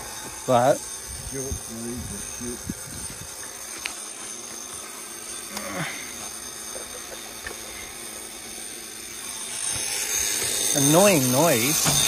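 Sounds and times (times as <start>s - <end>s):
engine running with whine: 0.0s - 12.0s.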